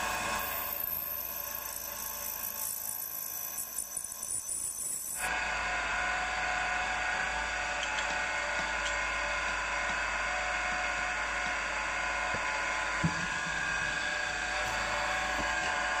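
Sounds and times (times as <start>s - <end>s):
milling machine drilling metal: 0.0s - 5.3s.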